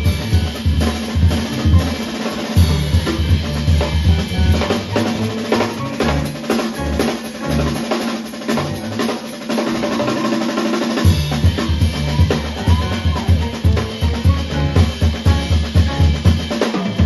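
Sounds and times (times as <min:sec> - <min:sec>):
bass drum kicks: 0:00.0 - 0:02.0, 0:02.6 - 0:07.8, 0:11.1 - 0:16.5
drum kit solo: 0:00.0 - 0:17.0.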